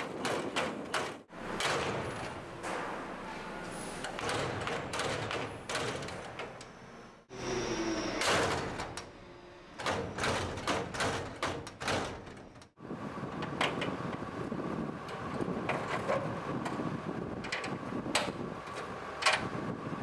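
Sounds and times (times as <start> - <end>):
trailer door slamming: 0.0 - 6.6, 8.2 - 9.1, 9.8 - 12.8.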